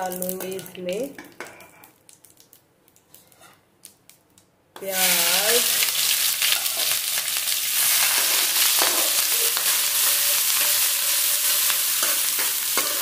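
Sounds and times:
onions sizzling in hot oil: 0:04.8 - 0:13.0
metal ladle scraping pan: 0:08.0 - 0:13.0.

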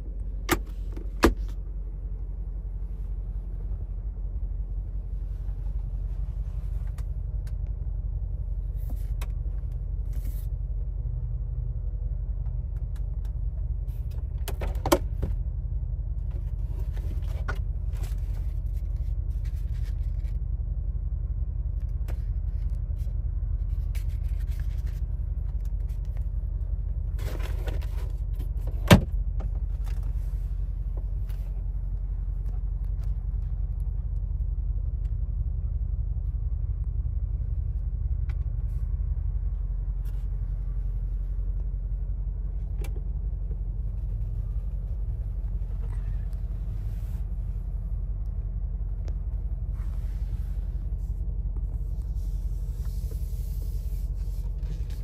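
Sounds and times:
car engine rumbling: 0:00.0 - 0:55.0.

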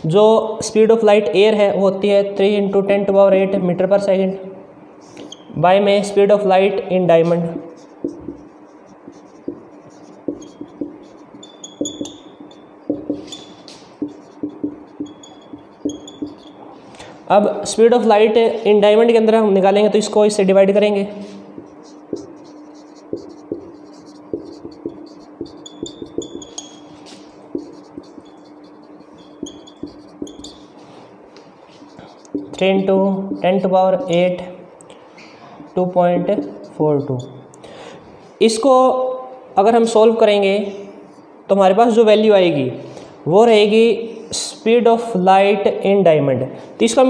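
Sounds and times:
steady low hum: 0:00.0 - 0:47.0
marker tip squeaks: 0:05.2 - 0:05.6, 0:09.1 - 0:16.7, 0:21.8 - 0:30.7
marker writing on whiteboard: 0:05.2 - 0:05.6, 0:06.7 - 0:17.0, 0:20.9 - 0:34.4, 0:35.6 - 0:37.5.

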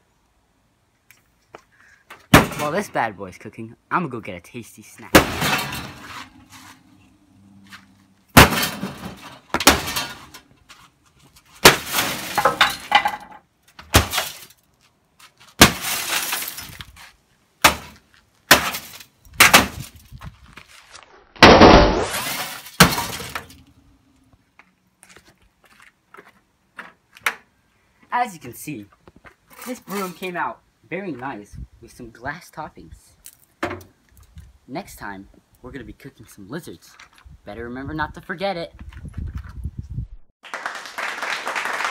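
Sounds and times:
glass shattering: 0:05.1 - 0:06.3, 0:08.4 - 0:10.4, 0:11.6 - 0:13.3, 0:13.9 - 0:14.6, 0:15.6 - 0:16.8, 0:17.6 - 0:19.8, 0:21.4 - 0:23.6.

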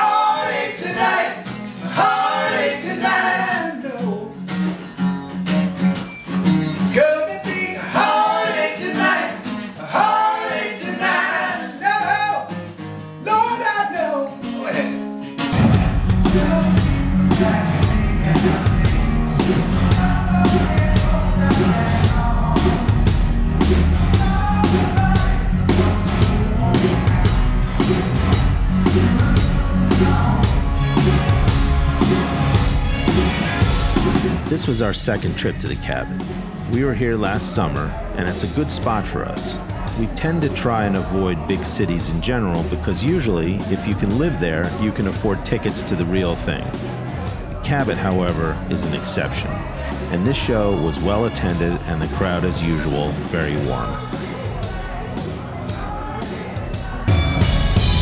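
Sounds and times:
person singing: 0:00.0 - 0:04.4, 0:06.9 - 0:12.7, 0:16.2 - 0:22.9, 0:24.1 - 0:27.5
rock band playing: 0:04.1 - 0:13.4, 0:14.3 - 0:58.0.

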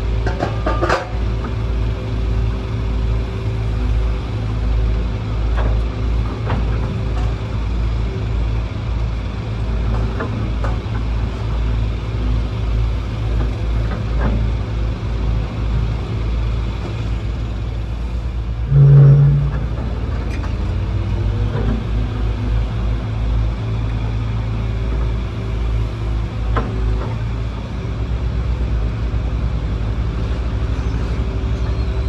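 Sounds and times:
diesel engine rumbling: 0:00.0 - 0:32.0
loud low-pitched tone: 0:18.5 - 0:20.5.

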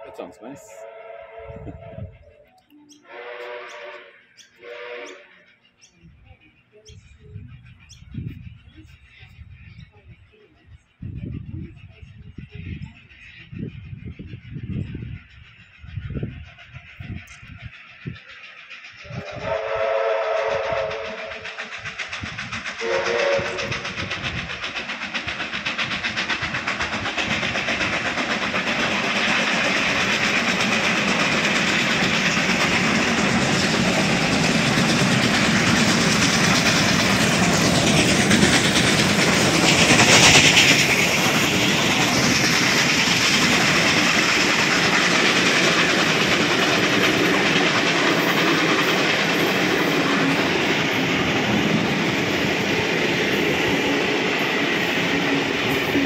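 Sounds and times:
steam locomotive passing: 0:00.0 - 0:56.0
train wheels clattering over rail joints: 0:20.4 - 0:56.0.

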